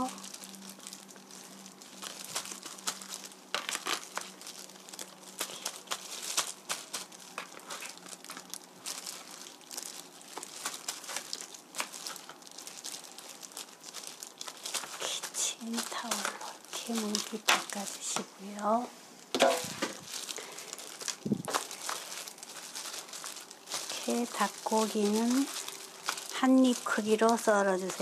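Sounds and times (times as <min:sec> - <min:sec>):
paper towel and gloves crinkling: 0:00.0 - 0:28.0.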